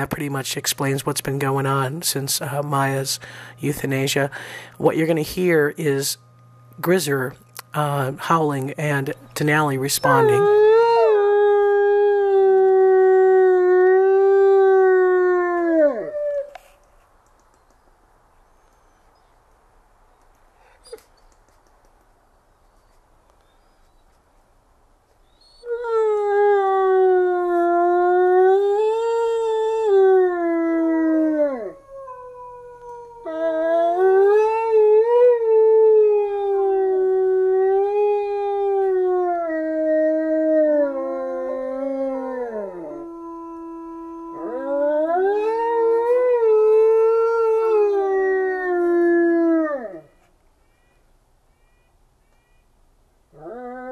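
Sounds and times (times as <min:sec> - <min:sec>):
wolves howling: 0:09.8 - 0:16.6, 0:25.4 - 0:50.2, 0:53.4 - 0:53.9.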